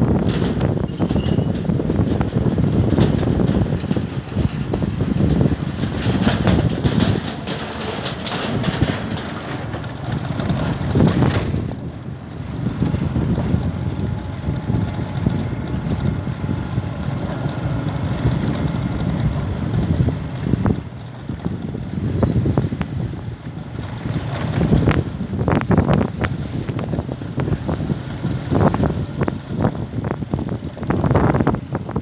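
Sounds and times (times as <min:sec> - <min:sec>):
motorbike engine running: 0:00.0 - 0:32.0
wind noise on microphone: 0:00.0 - 0:32.0
clattering over steel grating: 0:00.1 - 0:11.8.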